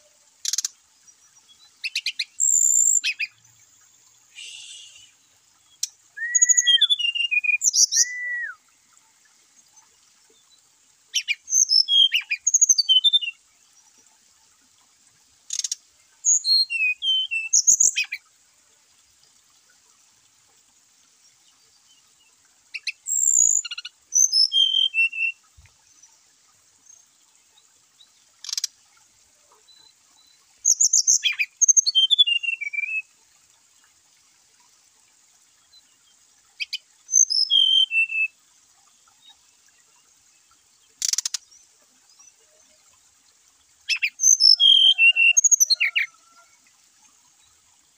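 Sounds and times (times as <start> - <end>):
bird singing whistled notes: 1.9 - 3.3, 4.3 - 5.2, 6.2 - 8.6, 11.2 - 13.4, 16.2 - 18.2, 22.8 - 25.4, 30.2 - 33.1, 36.7 - 38.4, 43.8 - 46.1.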